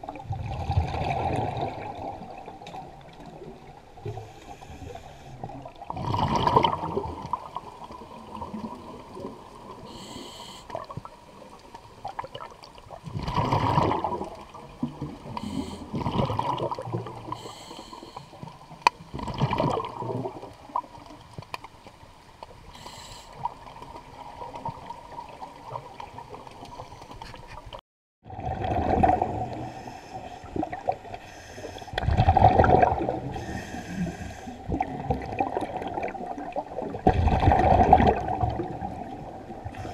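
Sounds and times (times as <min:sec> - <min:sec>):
underwater breath bubbling: 0:03.7 - 0:11.1, 0:13.0 - 0:20.4, 0:28.3 - 0:39.9.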